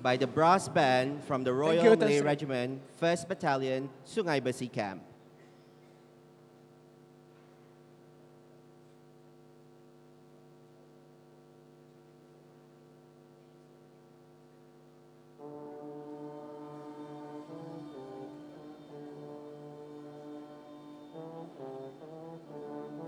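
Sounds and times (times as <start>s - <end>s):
brass band holding a chord: 1.2s - 2.6s, 15.4s - 23.0s.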